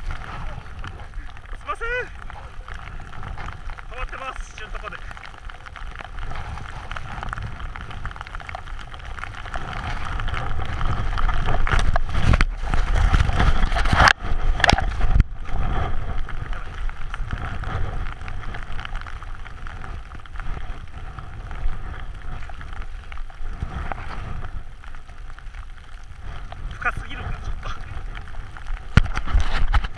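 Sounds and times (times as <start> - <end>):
skis hissing through powder snow: 0.0 - 5.2, 6.2 - 8.0
wind on camera microphone: 0.0 - 29.9.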